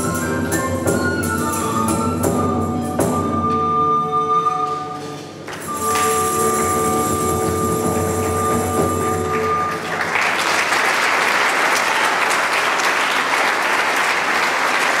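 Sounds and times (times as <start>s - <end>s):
audience applause: 7.5s - 15.0s.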